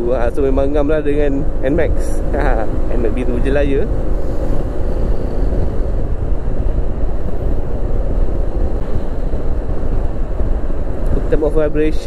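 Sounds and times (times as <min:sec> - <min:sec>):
wind rush on microphone: 0:00.0 - 0:12.0
scooter riding at speed: 0:02.1 - 0:11.0.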